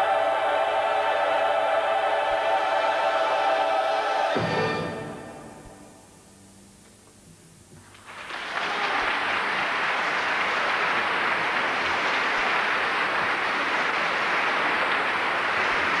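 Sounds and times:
audience applause: 7.9s - 16.0s.

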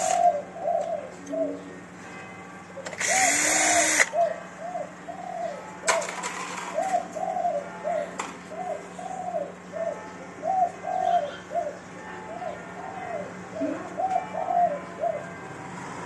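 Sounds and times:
pigeons cooing: 0.0s - 2.0s, 2.8s - 15.4s
cordless drill whirring: 2.9s - 4.1s.

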